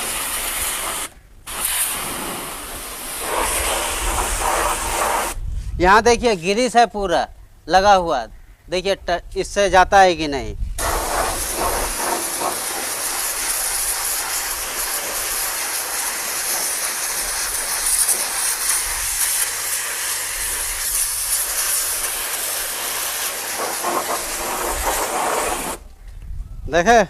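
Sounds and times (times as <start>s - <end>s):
pressure washer jet hissing: 0.0s - 5.4s, 10.8s - 25.9s.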